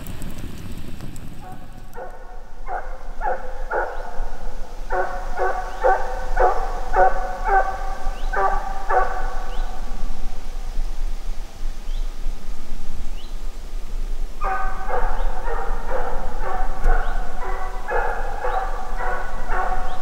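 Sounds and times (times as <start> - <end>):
dog barking: 1.4 - 9.6, 14.4 - 20.0.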